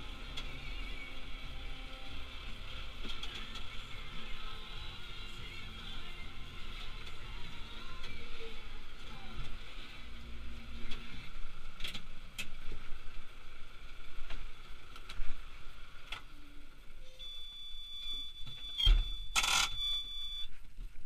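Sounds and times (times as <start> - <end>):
warning buzzer high-pitched tone: 17.1 - 20.5.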